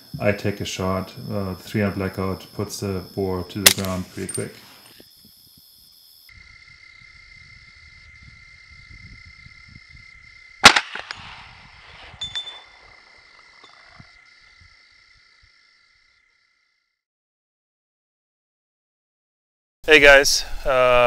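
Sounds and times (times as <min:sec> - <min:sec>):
rifle shot: 0:03.6 - 0:04.0, 0:10.6 - 0:12.7.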